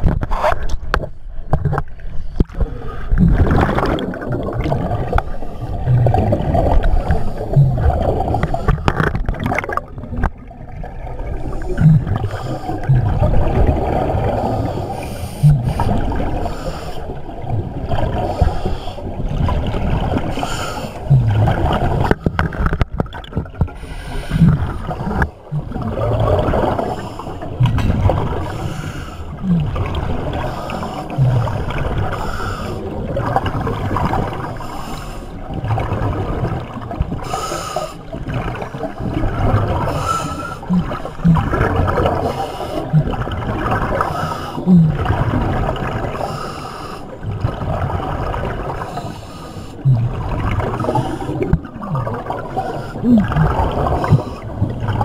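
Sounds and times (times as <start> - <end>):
diver bubbling exhalations: 2.5 - 10.2, 11.1 - 16.5, 17.3 - 22.7, 23.7 - 34.4, 38.3 - 46.4, 49.8 - 55.0.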